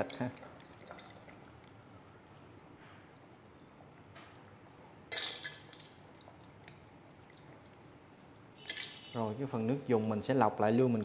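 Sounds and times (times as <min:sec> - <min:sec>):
metal bowl clink: 0:08.6 - 0:09.2.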